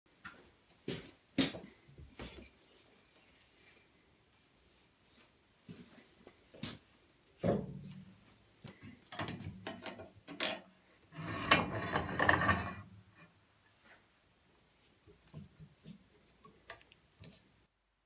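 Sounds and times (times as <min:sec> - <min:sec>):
metal knocks and clicks: 0:09.1 - 0:10.7
metal fence scraping along rail: 0:11.1 - 0:12.9.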